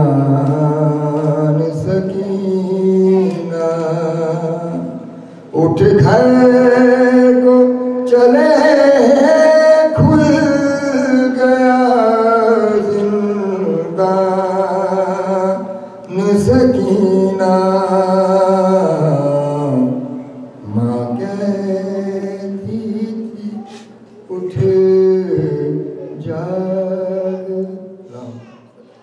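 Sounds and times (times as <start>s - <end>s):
man chanting: 0.0s - 29.0s
short breaths: 5.2s - 5.5s, 23.6s - 24.1s.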